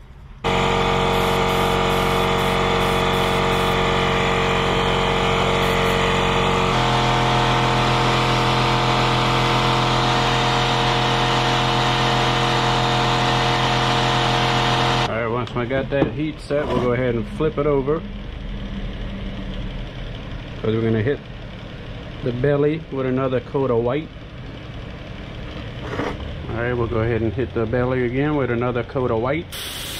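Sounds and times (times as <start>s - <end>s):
hair dryer blowing: 0.5s - 15.1s.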